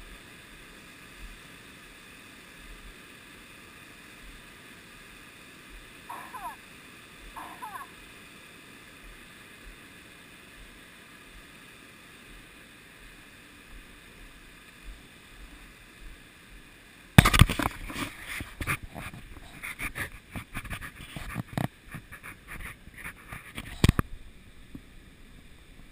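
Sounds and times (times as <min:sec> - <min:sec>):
faint steady hiss: 0:00.0 - 0:25.9.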